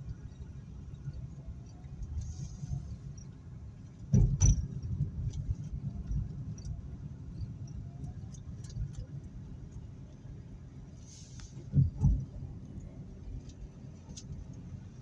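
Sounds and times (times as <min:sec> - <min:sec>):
road and engine rumble: 0:00.0 - 0:15.0.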